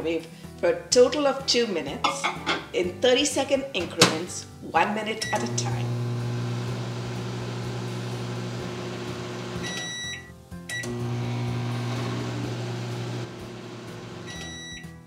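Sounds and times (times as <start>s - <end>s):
microwave beeping: 5.2s - 15.0s
microwave oven humming: 5.4s - 10.0s, 10.8s - 14.7s.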